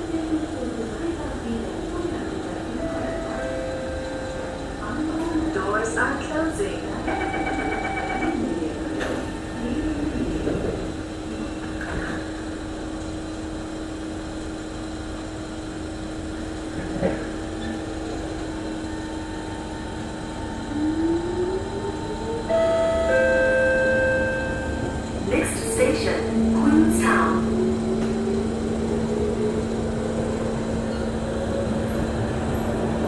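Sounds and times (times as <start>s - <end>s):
train carriage hum: 0.0s - 33.0s
train doors shutting: 2.1s - 12.6s, 16.6s - 19.0s, 21.3s - 33.0s.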